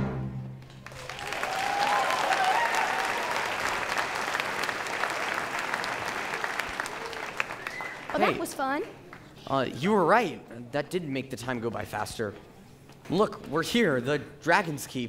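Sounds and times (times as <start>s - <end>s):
audience applauding: 0.6s - 9.4s.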